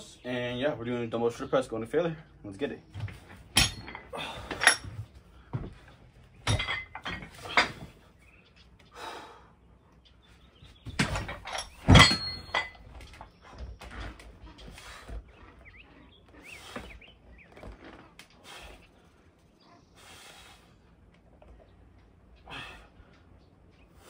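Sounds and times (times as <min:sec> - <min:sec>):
dumbbells knocking and clanking: 0:03.0 - 0:05.8, 0:06.4 - 0:08.0, 0:10.8 - 0:13.2.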